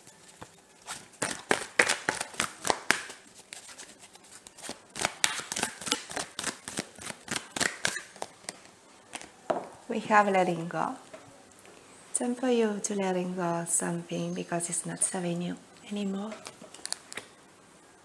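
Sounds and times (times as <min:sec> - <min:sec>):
cards being shuffled: 0:00.3 - 0:08.6.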